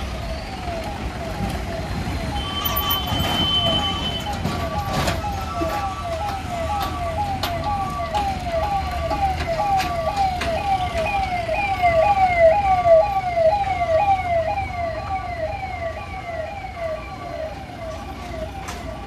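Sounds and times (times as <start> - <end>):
level crossing siren wailing: 0.0 - 19.0
road traffic rumble: 0.0 - 19.0
high steady beep: 2.3 - 4.4.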